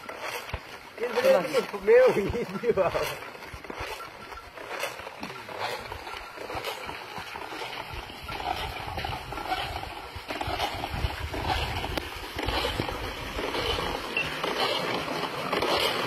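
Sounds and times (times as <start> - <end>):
wind rumbling on microphone: 8.0 - 13.8.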